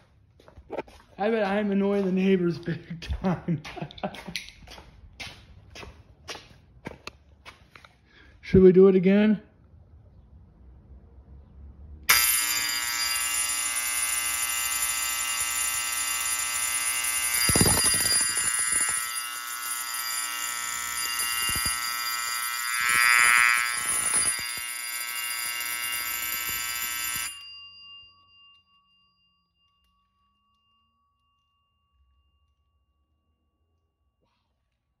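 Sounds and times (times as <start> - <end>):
fire alarm bell ringing: 12.1 - 34.0.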